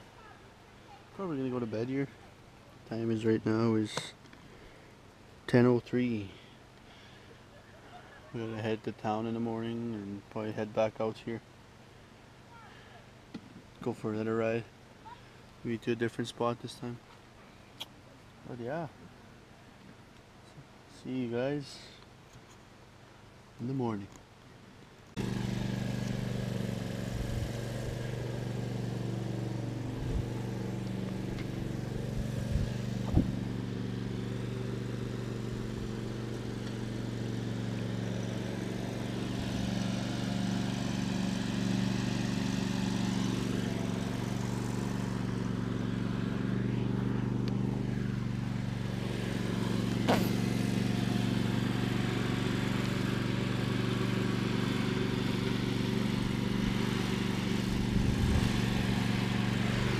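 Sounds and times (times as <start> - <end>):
engine idling: 25.2 - 59.9.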